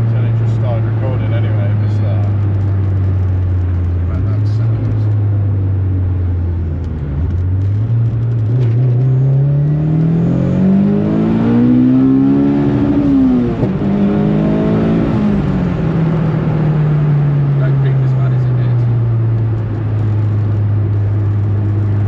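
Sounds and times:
car engine accelerating: 0.0s - 22.0s.

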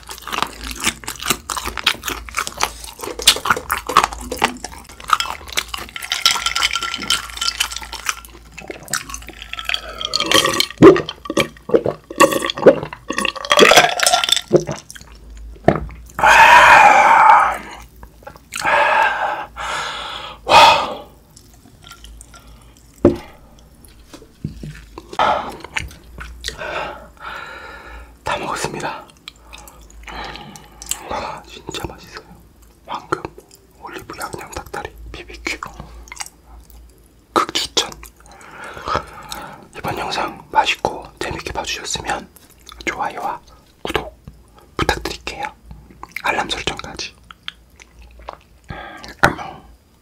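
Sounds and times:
wet chewing and smacking: 0.0s - 16.2s, 17.7s - 18.7s, 21.2s - 26.6s, 28.6s - 49.4s
gulping drink: 0.0s - 19.5s
loud burp: 9.6s - 14.7s.

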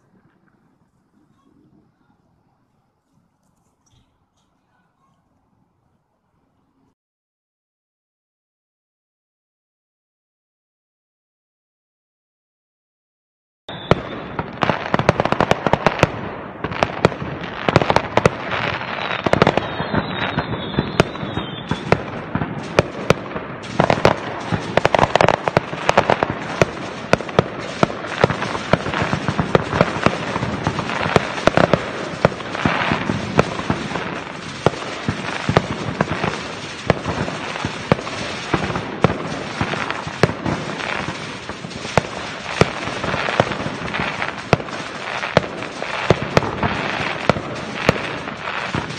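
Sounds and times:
fireworks bangs and crackling: 0.0s - 5.2s, 13.7s - 48.9s
wavering firework whistle: 13.7s - 14.6s, 18.6s - 23.2s.

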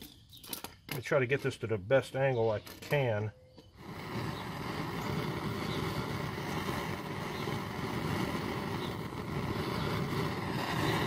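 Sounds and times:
gas torch burning: 3.6s - 11.0s.

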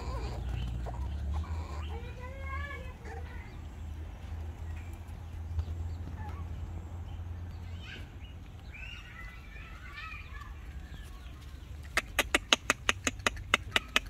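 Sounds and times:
chicken clucking: 0.0s - 2.3s, 10.9s - 14.0s.

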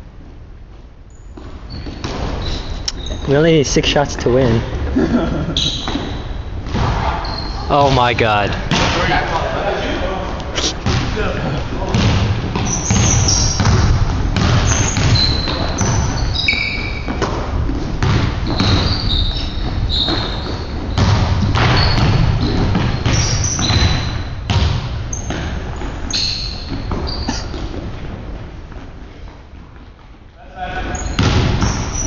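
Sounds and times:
shoes squeaking on hardwood court: 0.7s - 3.5s, 5.5s - 8.2s, 11.9s - 24.5s, 25.1s - 32.0s
basketball dribbling thuds: 1.4s - 3.2s, 10.8s - 30.2s, 30.8s - 32.0s.

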